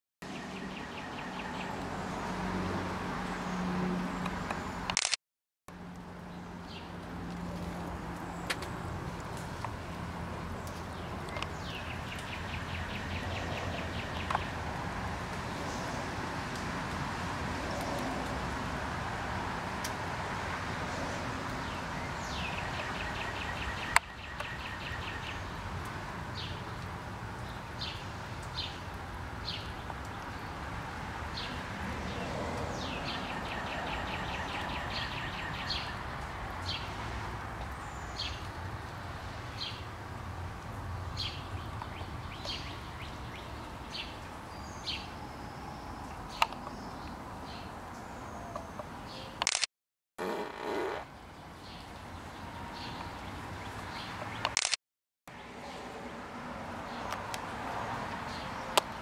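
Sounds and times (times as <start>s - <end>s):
songbirds chirping: 0.2s - 2.4s, 5.9s - 16.7s, 20.6s - 49.4s, 50.5s - 54.6s
sharp click: 4.2s - 5.2s, 49.4s - 49.7s, 54.4s - 54.8s.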